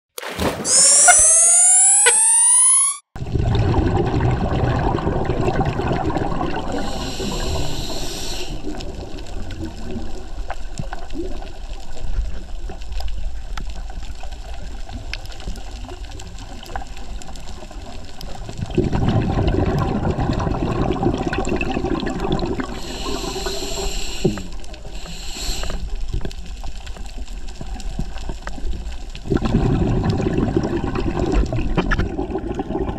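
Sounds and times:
underwater exhaled bubbles gurgling: 3.2 - 32.9
regulator inhalation hiss: 6.7 - 8.6, 22.7 - 25.9.

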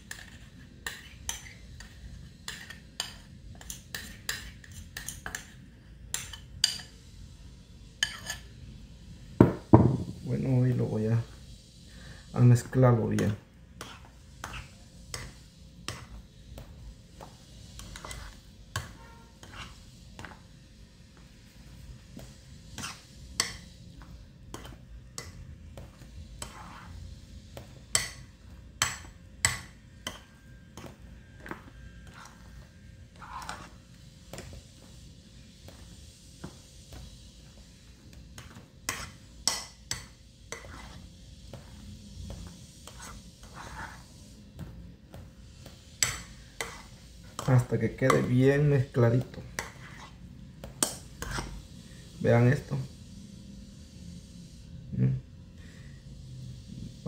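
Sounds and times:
spoon scraping glass bowl: 0.0 - 5.6, 6.2 - 7.0, 8.0 - 8.5, 13.2 - 16.2, 17.8 - 20.4, 22.8 - 23.7, 24.5 - 27.1, 27.9 - 33.8, 38.4 - 41.8, 42.4 - 44.1, 46.0 - 50.2, 50.8 - 51.6.

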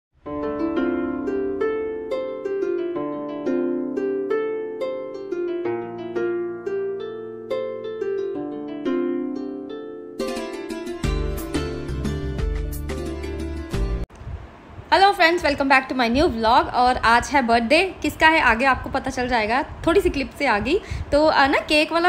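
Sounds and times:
plucked string melody: 0.2 - 14.1.

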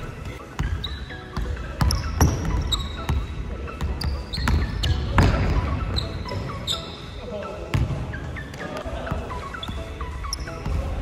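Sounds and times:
sneaker squeaks: 0.0 - 11.0
basketball dribbled on hardwood floor: 1.4 - 5.8.

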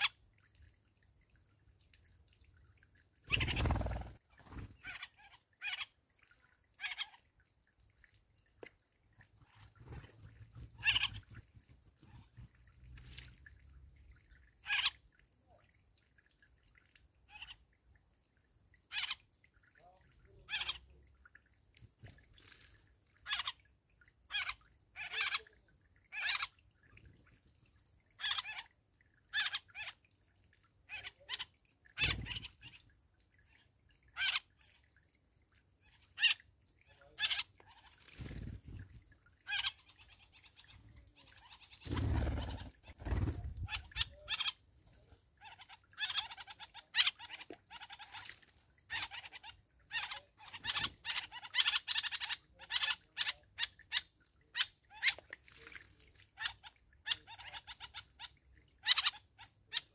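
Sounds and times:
birds chirping: 3.2 - 5.1, 9.4 - 11.4.

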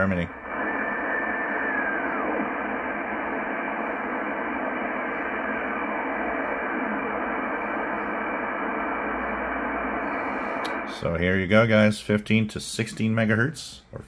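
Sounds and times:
radio signal whistle: 0.0 - 11.1
shortwave radio static: 0.0 - 14.0
faint gliding whistle: 0.5 - 2.5.

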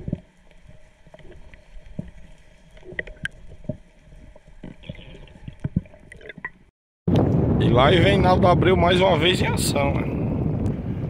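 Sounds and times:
sea water sloshing: 0.0 - 6.7.

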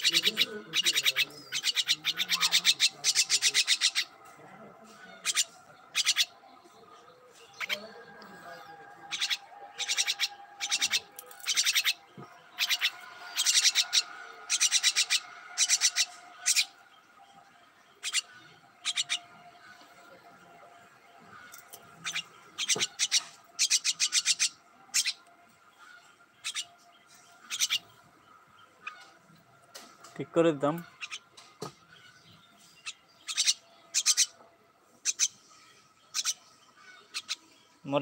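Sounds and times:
myna chattering calls: 0.0 - 4.2, 4.9 - 16.8, 17.9 - 19.8, 21.2 - 25.2, 25.8 - 26.8, 27.4 - 28.0, 30.8 - 34.4, 35.0 - 35.4, 36.0 - 37.5.

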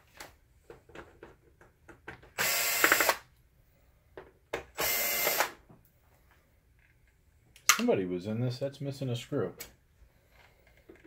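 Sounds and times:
cordless drill running: 2.4 - 3.2, 4.8 - 5.6.

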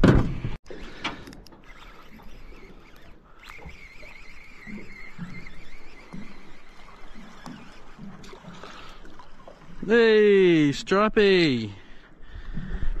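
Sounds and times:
fishing reel whirring whine: 0.7 - 10.0
sharp clicks: 1.0 - 8.4.

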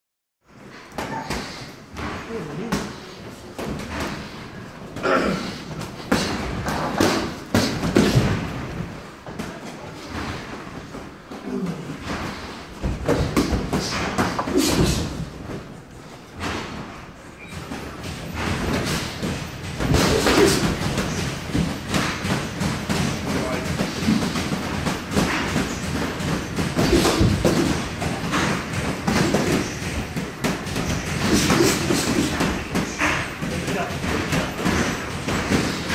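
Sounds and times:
boxing gloves thudding: 5.8 - 10.6, 16.3 - 35.9
boxing gloves landing: 23.9 - 33.2.

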